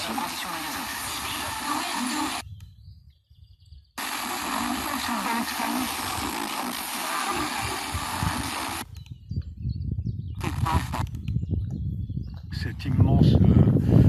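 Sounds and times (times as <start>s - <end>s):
faint radio programme: 0.0s - 2.4s, 4.0s - 8.8s
radio static hiss: 0.0s - 2.4s, 4.0s - 8.8s, 10.4s - 11.0s.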